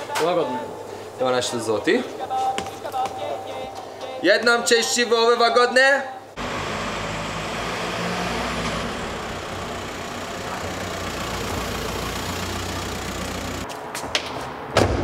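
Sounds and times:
car engine running: 6.4 - 13.7.

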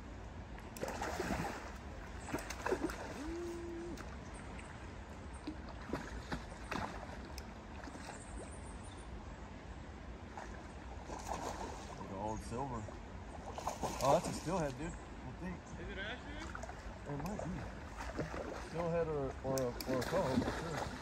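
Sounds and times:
river current washing: 0.6 - 21.0
fish splashing in water: 0.8 - 4.2, 5.4 - 8.6, 10.3 - 12.0, 13.4 - 14.4, 16.4 - 18.9, 19.6 - 21.0.

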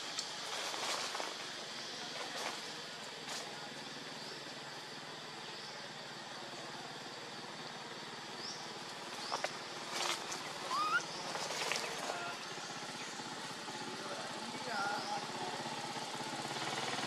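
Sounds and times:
engine drone: 0.0 - 17.0
short rising chirps: 10.6 - 11.7.

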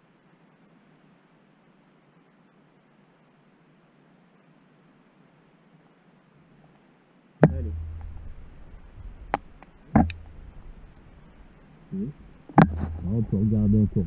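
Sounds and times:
low handling rumble: 7.4 - 14.0
camera knocking against stone: 9.3 - 10.7, 12.5 - 13.1.

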